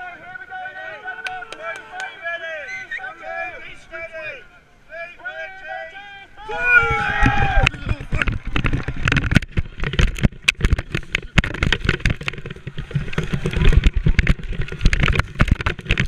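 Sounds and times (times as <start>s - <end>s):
camera thumps and knocks: 7.2s - 16.0s.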